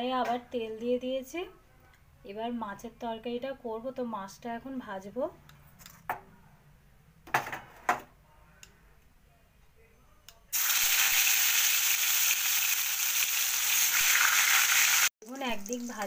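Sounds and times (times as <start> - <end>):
fish sizzling in hot oil: 10.6 - 16.0.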